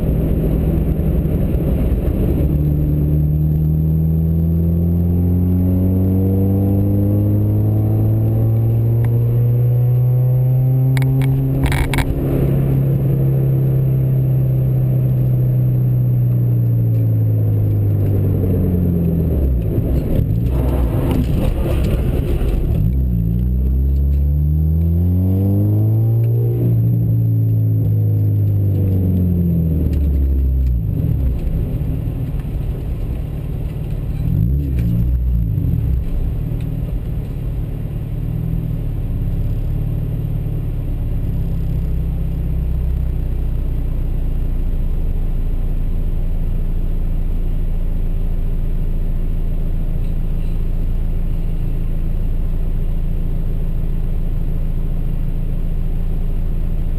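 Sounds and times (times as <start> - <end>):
vehicle engine changing gears: 0.0 - 45.0.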